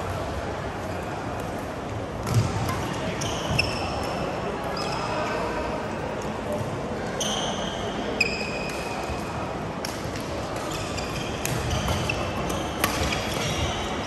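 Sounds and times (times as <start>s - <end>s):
court shoes squeaking: 2.2s - 5.4s, 6.5s - 9.2s, 10.1s - 14.0s
racket striking shuttlecock: 12.8s - 13.5s.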